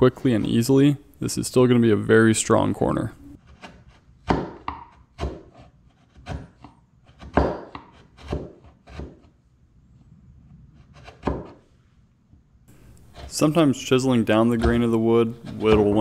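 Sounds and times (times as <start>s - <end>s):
chisel scraping wood: 3.4s - 9.4s, 10.4s - 11.7s, 12.7s - 16.0s.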